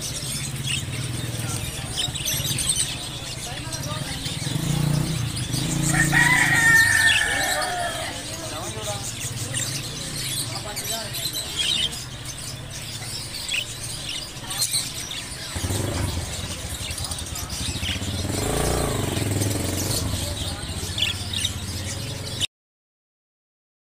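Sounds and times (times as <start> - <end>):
engine: 0.0 - 7.2, 11.5 - 22.5
budgerigars chirping: 0.0 - 22.5.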